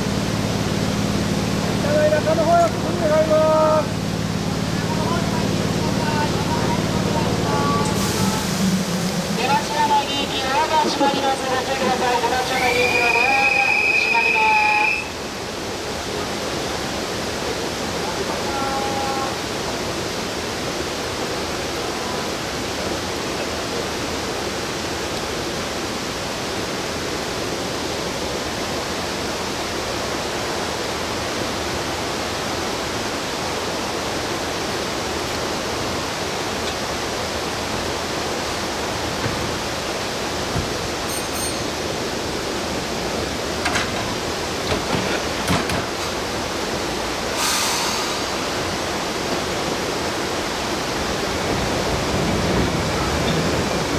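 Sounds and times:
steady rushing noise: 0.0s - 12.6s
short hiss: 47.3s - 48.5s.

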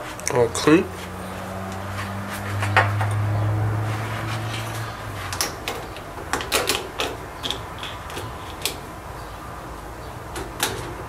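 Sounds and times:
wire rack clicks and knocks: 10.3s - 11.0s.

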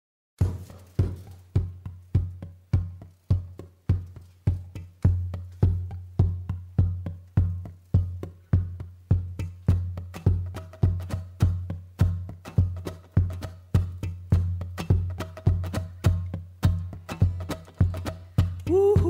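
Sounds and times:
deep bass drum beat: 0.4s - 19.0s
clicky woodblock-like percussion: 9.4s - 18.7s.

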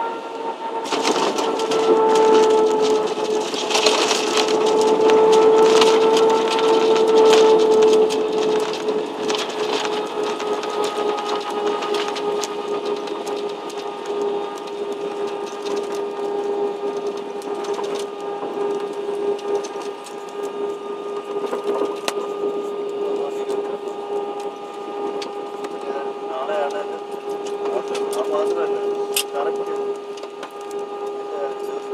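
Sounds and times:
jet engine and airframe noise: 0.0s - 31.9s.

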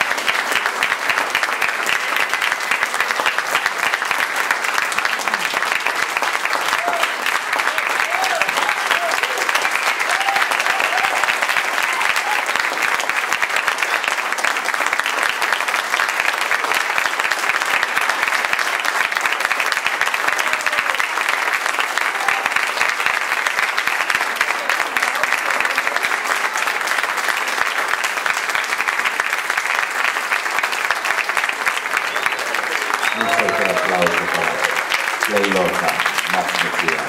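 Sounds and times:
audience clapping: 0.0s - 37.0s.

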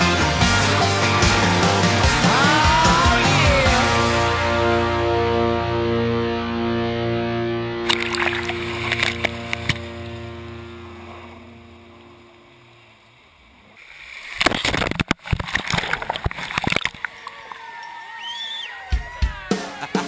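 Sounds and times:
song chord: 0.2s - 13.0s
muddy water splashing and rushing: 7.8s - 18.3s.

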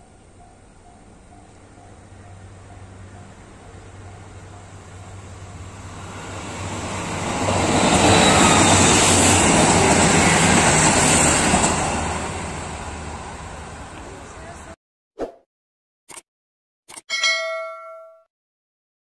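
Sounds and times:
train rumbling past: 0.0s - 14.8s.

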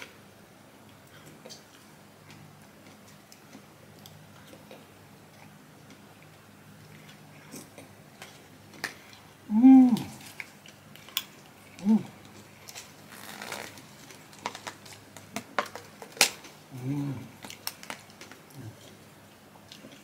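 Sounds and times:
short pitched vocal sound: 9.5s - 10.2s.

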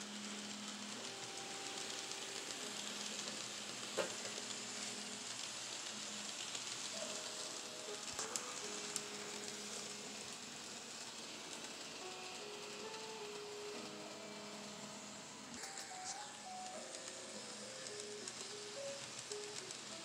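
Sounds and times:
model train wheels rolling: 0.0s - 20.0s.

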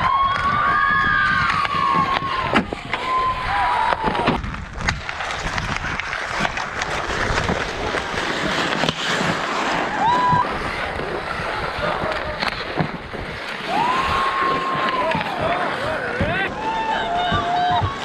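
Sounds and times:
skates scraping ice: 0.0s - 18.0s
hockey sticks clacking: 3.7s - 13.5s, 14.4s - 18.0s
players calling out: 13.6s - 18.0s.

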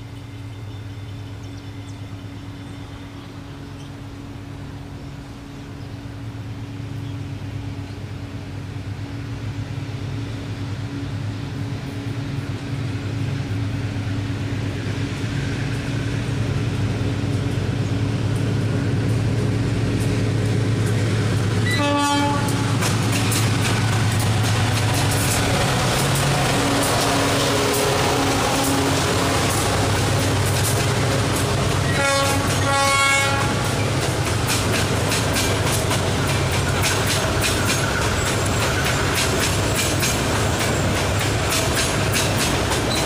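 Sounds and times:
diesel locomotive engine drone: 0.0s - 43.0s
wheels clicking over rail joints: 17.2s - 43.0s
train horn blast: 21.6s - 22.8s, 26.2s - 30.4s, 31.2s - 33.8s.

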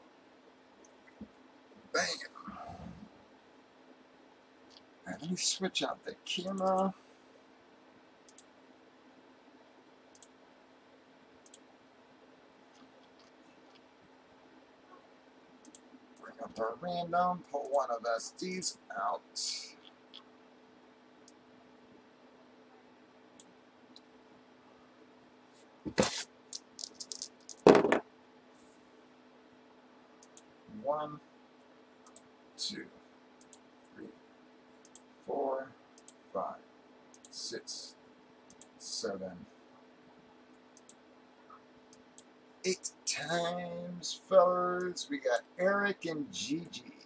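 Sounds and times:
dice knocking on tabletop: 25.9s - 28.0s
light dice clicks: 26.1s - 28.0s.

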